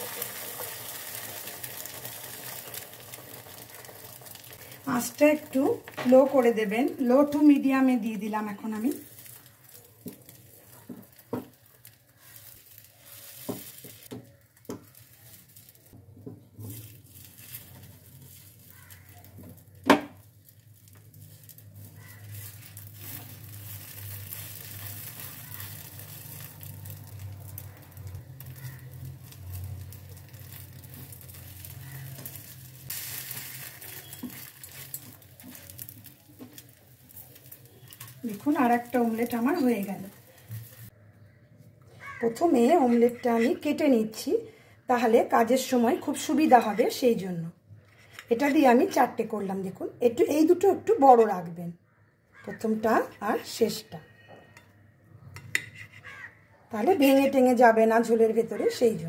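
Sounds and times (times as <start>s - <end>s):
omelette sizzling in a pan: 0.0s - 41.0s
spatula scraping and tapping pan: 30.5s - 38.2s, 55.4s - 56.1s.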